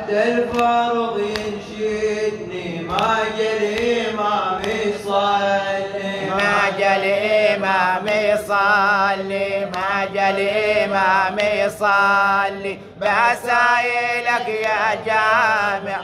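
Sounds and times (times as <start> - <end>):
man chanting a lament: 0.0 - 16.0.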